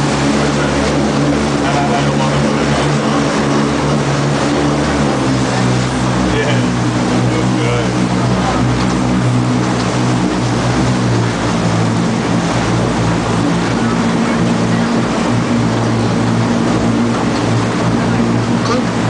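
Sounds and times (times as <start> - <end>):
boat engine droning: 0.0 - 19.0
water rushing and splashing: 0.0 - 19.0.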